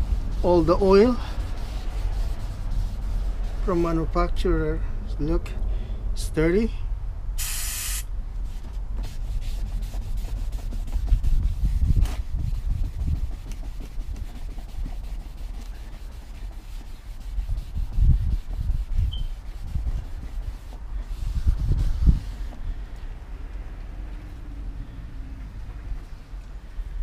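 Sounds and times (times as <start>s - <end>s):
cloth rubbing on metal rotor: 0.0s - 4.2s, 7.7s - 22.7s.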